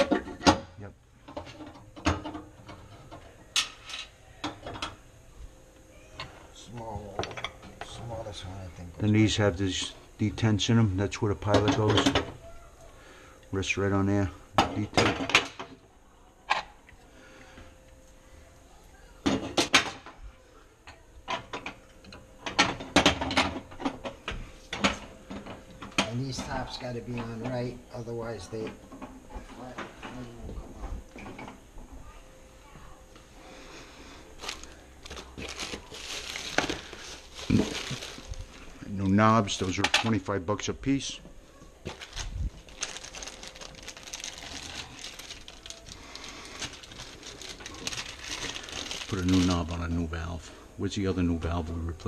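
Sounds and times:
plastic bag crinkling: 34.4s - 40.2s, 41.8s - 50.3s.

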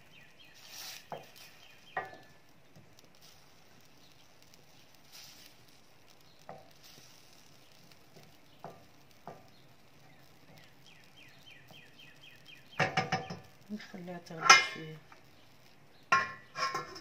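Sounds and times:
faint sizzle: 0.0s - 17.0s
spatula stirring sauce in pan: 0.0s - 17.0s
spatula knocking against pan: 12.8s - 13.5s
utensil clattering on pan: 12.8s - 13.5s, 14.4s - 14.8s, 16.1s - 17.0s.

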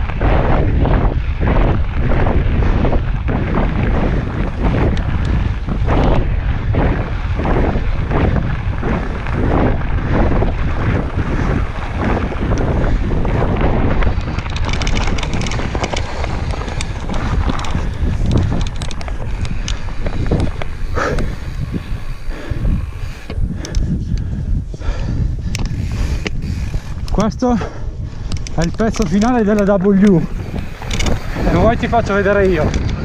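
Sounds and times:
wind buffeting microphone: 0.0s - 33.0s
tyres crunching over gravel: 7.1s - 23.4s, 28.3s - 33.0s.

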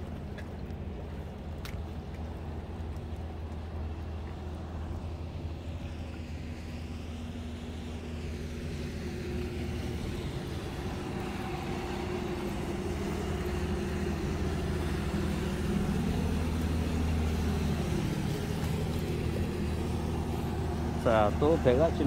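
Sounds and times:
boat engine droning: 0.0s - 22.0s.

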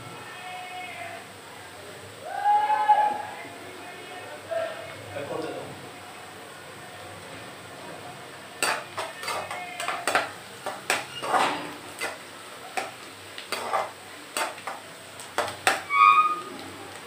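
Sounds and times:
metal spatula scraping a pan: 8.6s - 14.8s, 15.4s - 16.6s.

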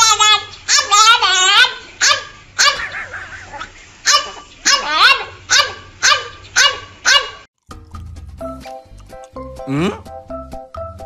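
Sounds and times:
puppy barking in high yelps: 0.0s - 7.5s.

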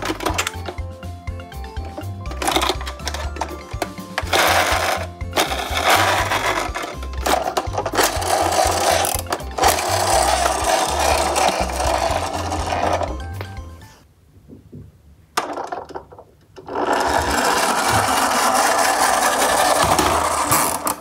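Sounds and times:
background music with low beat: 0.0s - 13.9s.

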